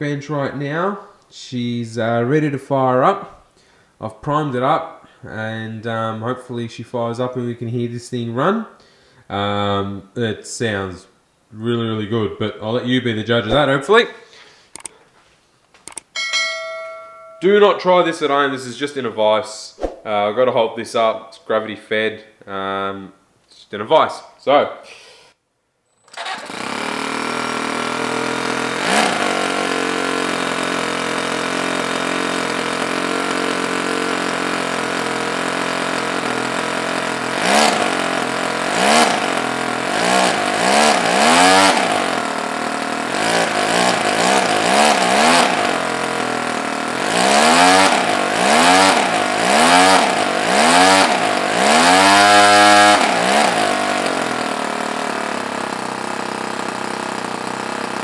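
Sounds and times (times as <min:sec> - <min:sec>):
model engine idling and revving: 0:26.1 - 0:58.0.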